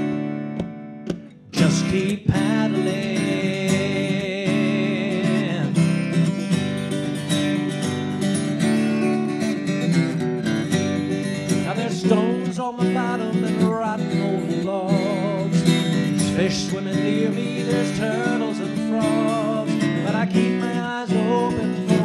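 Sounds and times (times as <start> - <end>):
acoustic guitar strumming: 0.0 - 22.0
person singing: 1.5 - 6.4, 11.5 - 22.0.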